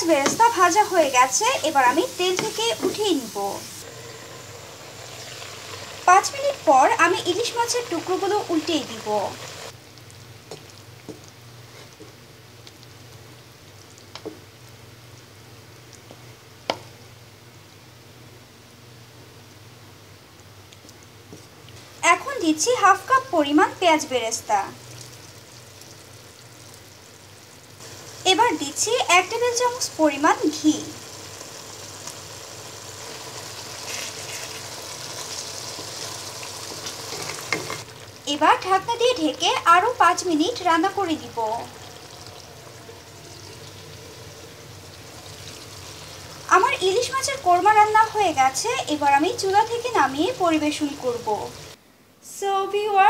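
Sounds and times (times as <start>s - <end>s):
sauce sizzling in a frying pan: 0.0s - 17.8s, 19.3s - 51.8s
spatula knocking pan: 0.1s - 0.6s, 2.2s - 3.1s
sauce simmering with small pops: 9.7s - 17.0s, 20.4s - 21.9s, 31.1s - 38.2s
wooden spatula turning fish: 10.4s - 12.2s, 33.2s - 37.9s.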